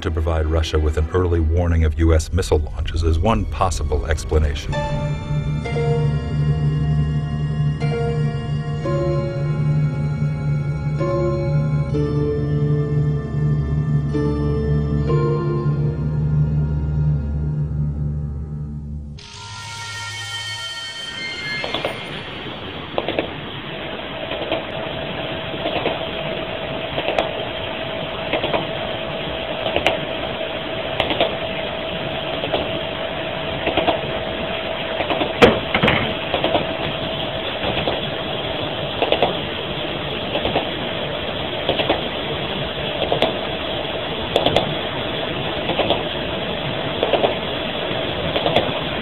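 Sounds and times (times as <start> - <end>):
constant hum tone: 0.0 - 49.0
crackling bursts: 19.2 - 49.0.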